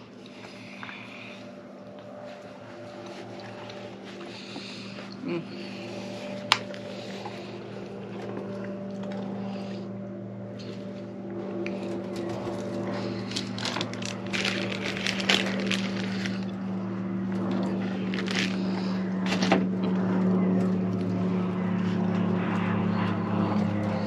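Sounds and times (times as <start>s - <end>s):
engine drone: 0.0s - 24.0s
plastic bag crinkling: 13.2s - 16.4s, 18.0s - 18.6s.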